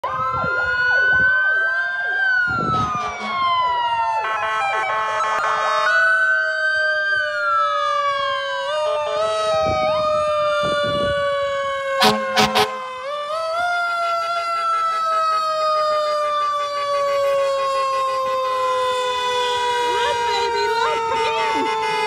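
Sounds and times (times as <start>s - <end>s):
sirens wailing: 0.0s - 22.0s
horn blasts: 12.0s - 13.1s.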